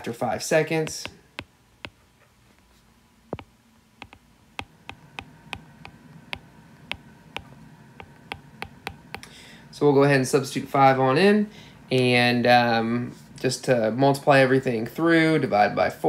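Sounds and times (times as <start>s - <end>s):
stylus tapping on glass screen: 0.8s - 2.0s, 3.3s - 9.3s.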